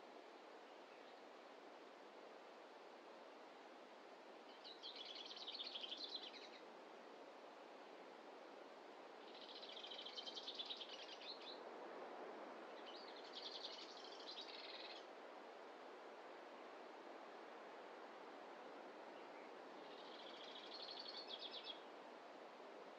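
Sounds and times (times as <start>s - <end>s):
faint forest ambience: 0.0s - 22.9s
songbird singing: 4.5s - 6.6s, 9.3s - 11.6s, 12.8s - 15.1s, 19.2s - 21.9s.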